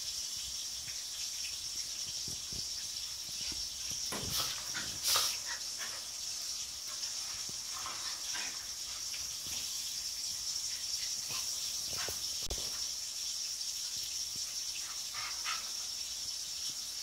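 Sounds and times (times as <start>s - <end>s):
dogs scuffling on tile floor: 0.3s - 17.0s
dog noises: 2.8s - 12.9s, 14.6s - 16.4s.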